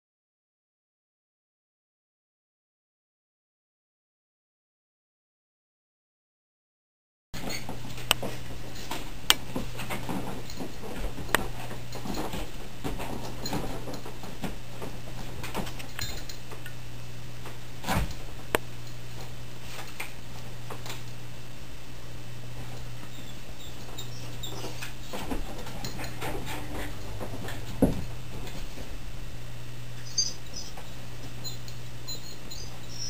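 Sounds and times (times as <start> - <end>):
steady low hum: 7.4 - 33.0.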